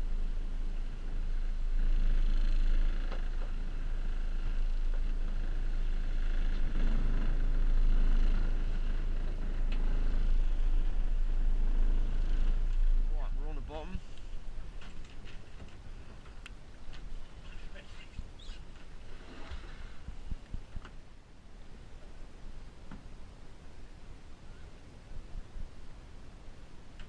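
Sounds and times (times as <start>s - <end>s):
boat engine droning: 0.0s - 15.0s.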